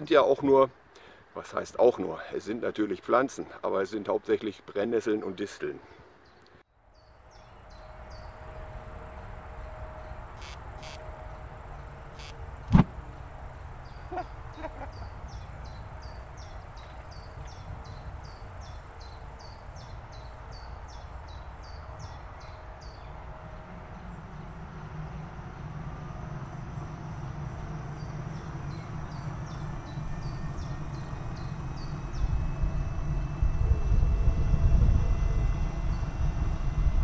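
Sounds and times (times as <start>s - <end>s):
low wind rumble: 6.8s - 37.0s
short high chirping calls: 10.4s - 11.0s, 12.2s - 12.4s.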